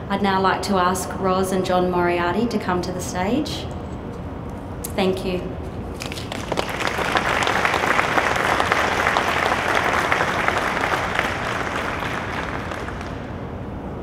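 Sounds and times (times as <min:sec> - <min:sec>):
audience applauding: 0:06.0 - 0:13.4.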